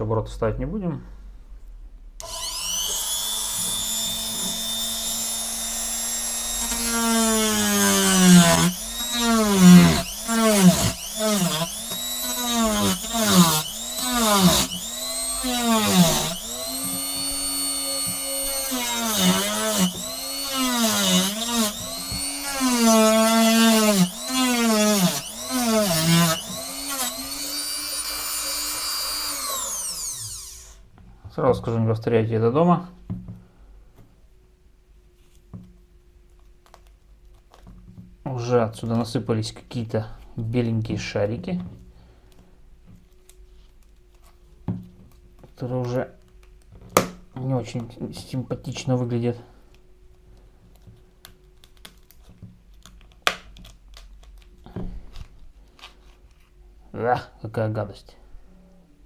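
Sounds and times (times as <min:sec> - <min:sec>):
cutting disc cutting plastic: 0:02.2 - 0:30.8
rotary tool whining: 0:02.2 - 0:30.8.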